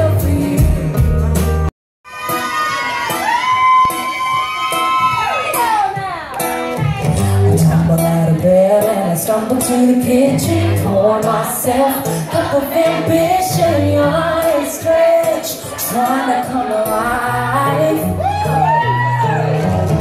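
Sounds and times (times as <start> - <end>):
woman singing: 0.0 - 1.1, 5.8 - 18.3
drums keeping a beat: 0.0 - 1.7
electric bass: 0.0 - 1.7, 6.8 - 8.4, 17.0 - 20.0
acoustic guitars: 0.0 - 20.0.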